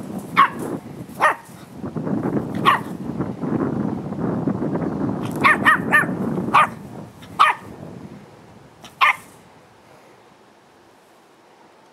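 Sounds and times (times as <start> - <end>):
small dog yapping: 0.3 - 1.6, 2.6 - 3.0, 5.3 - 7.7, 8.9 - 9.3.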